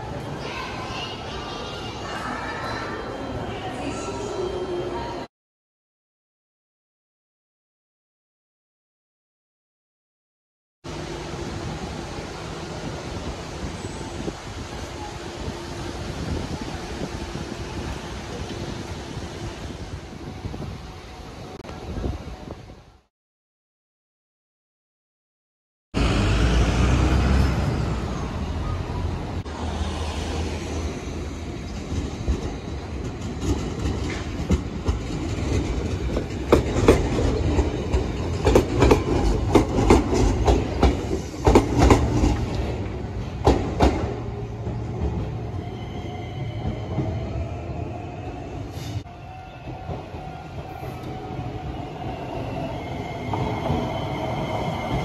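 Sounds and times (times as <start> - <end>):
train rumbling on track: 10.9 - 23.1, 26.0 - 55.0.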